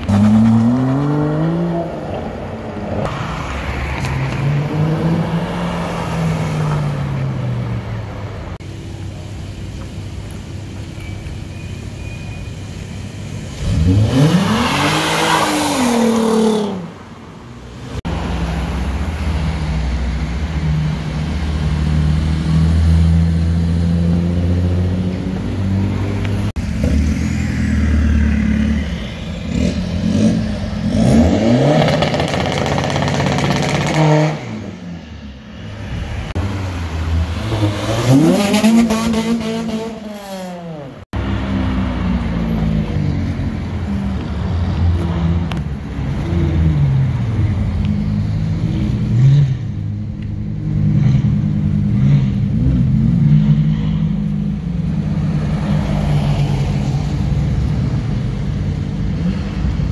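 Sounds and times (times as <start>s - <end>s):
engines revving: 0.0s - 8.7s, 13.2s - 35.2s, 35.8s - 59.9s
cars driving past: 0.0s - 9.2s, 13.3s - 59.9s.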